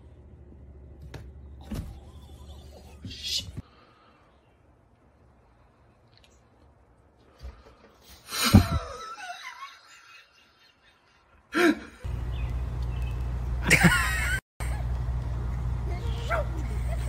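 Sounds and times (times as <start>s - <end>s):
person laughing: 8.3s - 12.1s, 13.6s - 14.8s, 16.6s - 17.0s.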